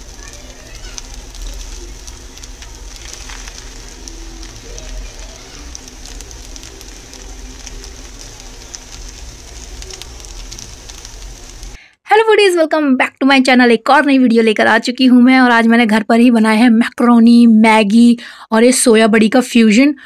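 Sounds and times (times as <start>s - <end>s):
noodles sizzling in a pan: 0.0s - 11.8s
steady low hum: 0.0s - 11.8s.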